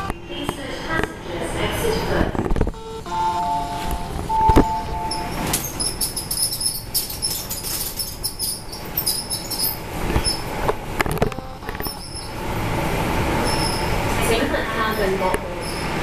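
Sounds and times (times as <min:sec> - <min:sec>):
passengers' footsteps: 0:00.0 - 0:02.8
short high squeaks: 0:05.1 - 0:10.6, 0:11.2 - 0:12.4, 0:13.4 - 0:14.0, 0:14.9 - 0:16.0.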